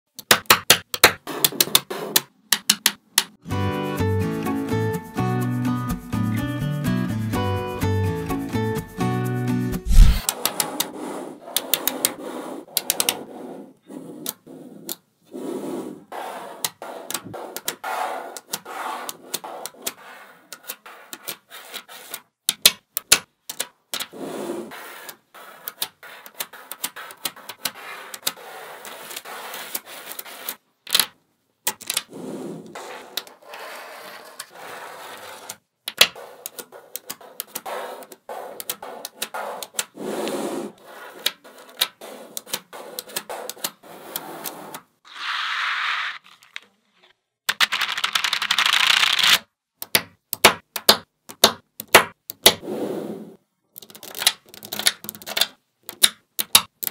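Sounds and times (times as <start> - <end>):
balls scraping on tabletop: 1.2 - 2.3, 9.9 - 22.3, 24.0 - 30.6, 31.8 - 47.2, 52.4 - 55.4
magnet balls clicking together: 35.9 - 39.9, 53.7 - 56.9.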